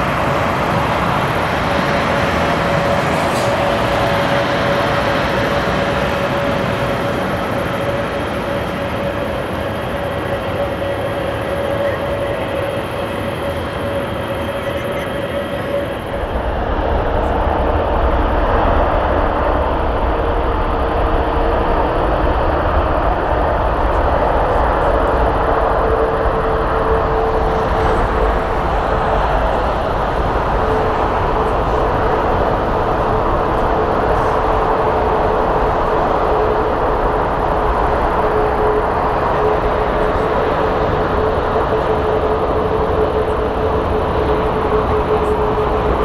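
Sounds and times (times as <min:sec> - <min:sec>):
jet engines roaring: 0:00.0 - 0:46.0.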